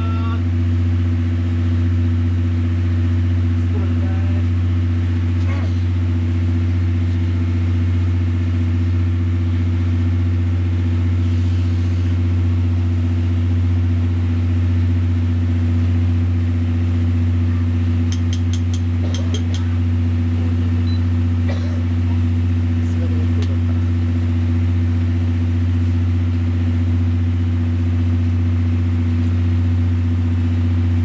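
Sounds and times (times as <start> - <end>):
diesel engine running: 0.0 - 31.0.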